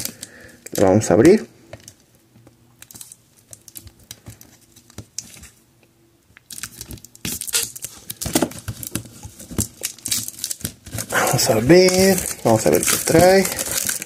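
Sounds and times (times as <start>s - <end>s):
plastic shrink-wrap crackling: 6.5s - 14.0s.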